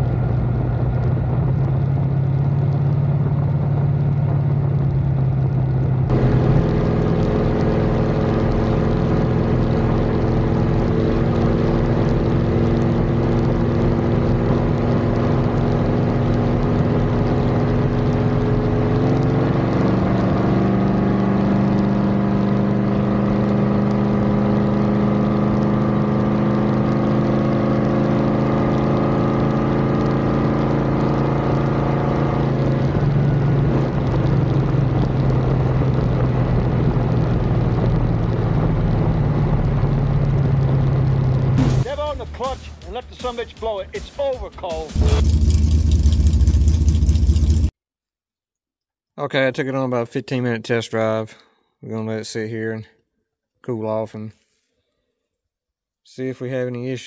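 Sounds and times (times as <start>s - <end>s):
engine drone: 0.0s - 35.9s, 44.9s - 47.7s.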